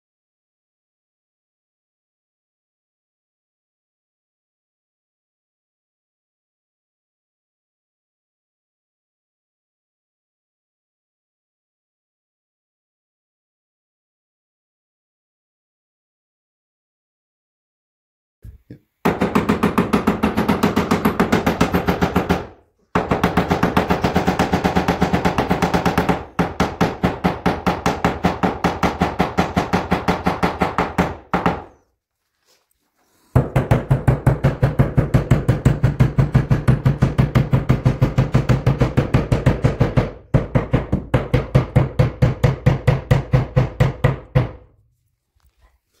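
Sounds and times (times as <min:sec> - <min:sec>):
hammer driving nails into wood: 0:19.0 - 0:31.7, 0:33.3 - 0:44.7.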